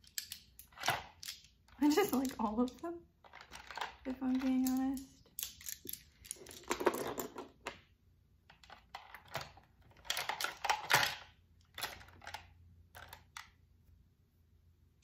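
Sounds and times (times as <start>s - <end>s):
brush handles clicking together: 0.0s - 6.7s.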